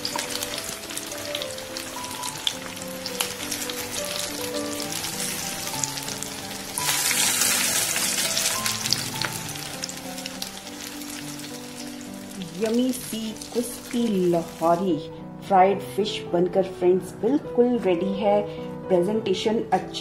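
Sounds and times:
fish deep-frying in oil: 0.0s - 14.8s.

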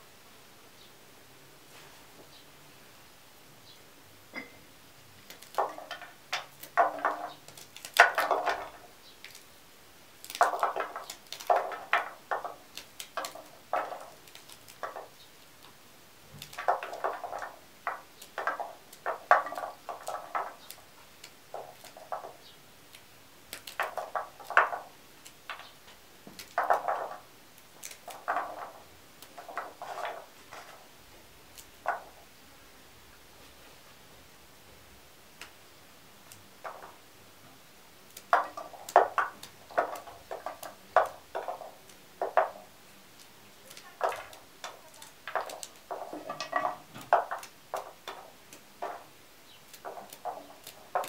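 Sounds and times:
bean pieces dropping into metal bowl: 5.2s - 9.5s, 10.2s - 30.9s, 36.3s - 37.1s, 38.1s - 51.0s
green beans snapping and cutting: 5.2s - 9.5s, 10.2s - 30.8s, 38.1s - 51.0s.

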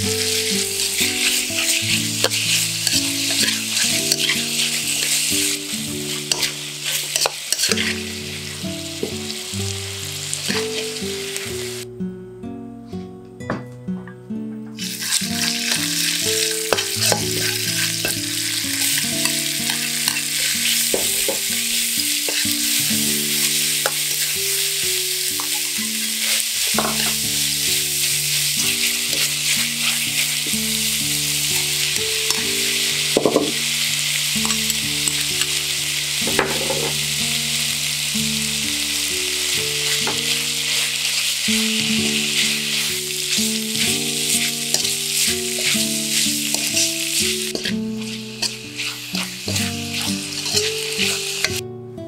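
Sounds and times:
metal spatula scraping wok: 0.0s - 9.1s, 14.8s - 33.6s, 34.4s - 35.6s, 39.4s - 51.6s
food sizzling in a wok: 0.0s - 11.9s, 14.8s - 51.6s.

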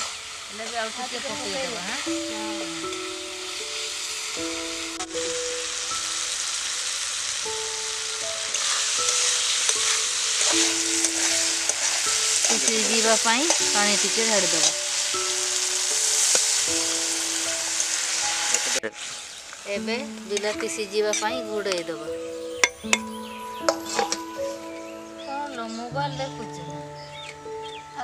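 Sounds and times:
liver sizzling in a pan: 0.0s - 28.0s
melody playing: 1.2s - 19.0s, 19.8s - 28.0s
metal spatula stirring: 8.4s - 18.8s, 23.7s - 24.4s.

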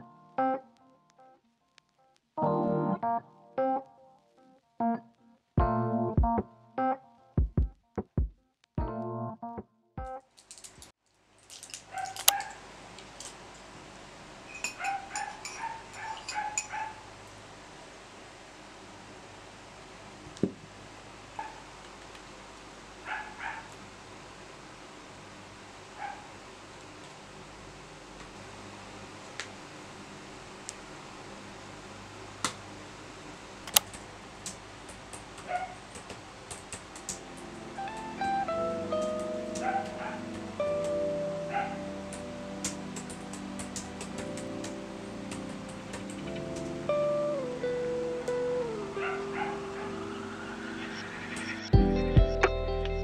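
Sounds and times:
metal spoon clinking in a mug: 14.5s - 16.8s
sharp click: 33.7s - 34.0s
laptop keyboard typing: 33.7s - 38.2s, 42.1s - 46.8s.

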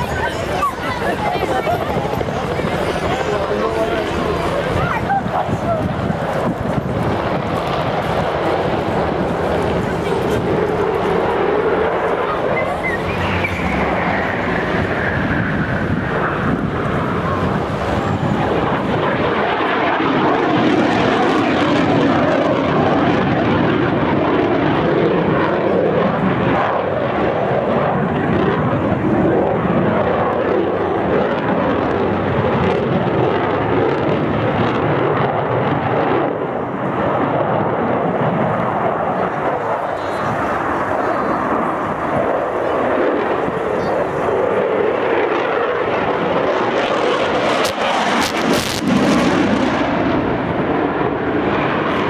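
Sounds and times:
high whine falling in pitch: 0.0s - 19.0s
jet engine noise: 0.0s - 52.0s.

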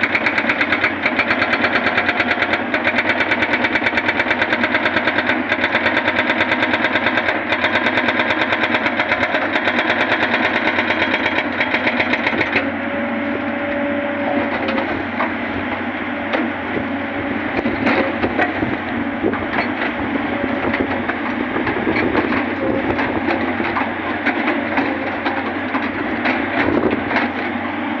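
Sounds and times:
hydraulic breaker hammering rock: 0.0s - 12.7s, 20.6s - 27.6s.

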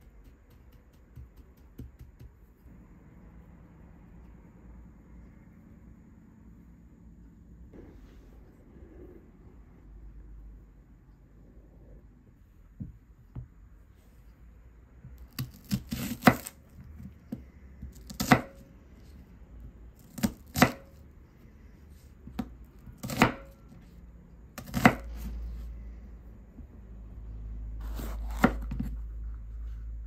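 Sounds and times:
knife crunching through onion: 15.3s - 16.6s, 27.8s - 29.0s.

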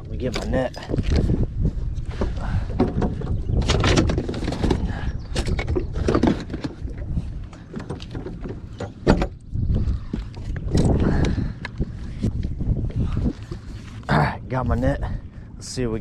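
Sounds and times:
wind rumble on microphone: 0.0s - 16.0s
gear clattering in storage compartment: 2.2s - 9.5s.

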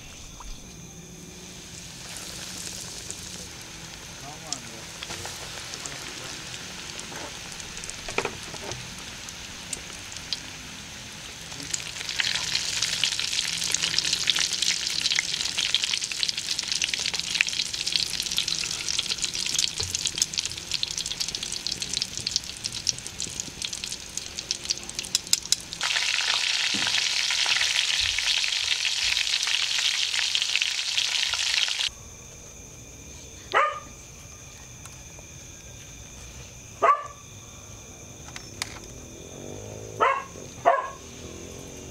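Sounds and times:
food deep-frying in oil: 1.4s - 31.9s.

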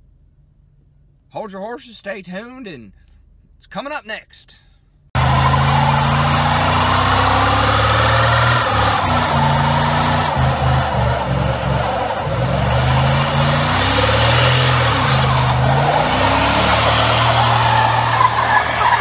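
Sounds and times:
truck engine revving: 5.2s - 19.0s
tyre screeching on pavement: 5.2s - 19.0s.

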